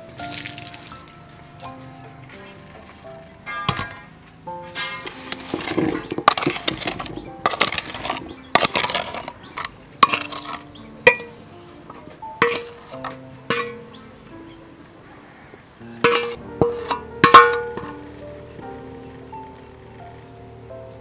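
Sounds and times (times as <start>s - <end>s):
metal pan clinking against bowl: 3.5s - 4.1s, 4.7s - 14.2s, 16.0s - 18.0s
wet fruit tumbling into bowl: 5.1s - 11.4s.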